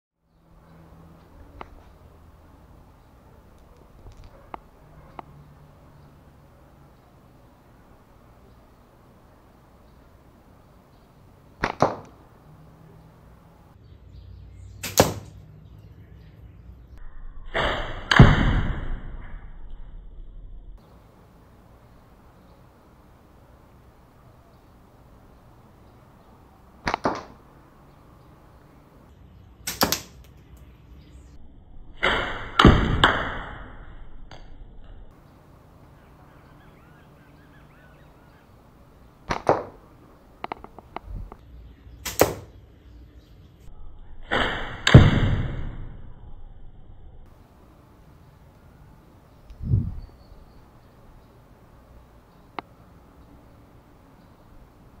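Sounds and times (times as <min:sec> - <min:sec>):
sharp snaps: 0:11.6 - 0:12.2, 0:14.8 - 0:15.4, 0:26.8 - 0:27.4, 0:29.6 - 0:30.7, 0:39.2 - 0:39.8, 0:40.4 - 0:41.4, 0:42.0 - 0:42.6
slingshot shots striking target: 0:11.6 - 0:12.2, 0:14.8 - 0:15.4, 0:17.5 - 0:19.5, 0:26.8 - 0:27.4, 0:29.6 - 0:30.2, 0:32.0 - 0:33.9, 0:39.2 - 0:39.8, 0:42.0 - 0:42.5, 0:44.2 - 0:46.0
slingshot rubber bands snapping: 0:29.7 - 0:30.4.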